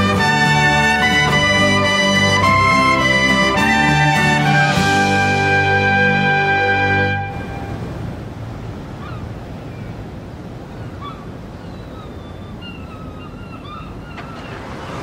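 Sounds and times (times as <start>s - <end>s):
music: 0.0s - 7.7s
wind and choppy water: 0.0s - 15.0s
faint bird calls: 8.9s - 15.0s.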